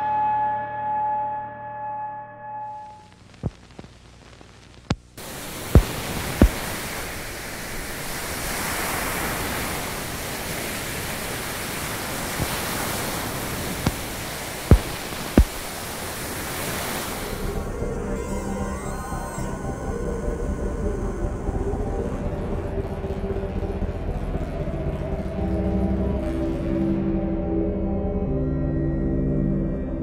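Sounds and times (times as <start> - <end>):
static hiss: 2.9 - 26.6
clicks and pops: 3.3 - 7.1, 13.8 - 15.7
held music tone: 17.4 - 27.8.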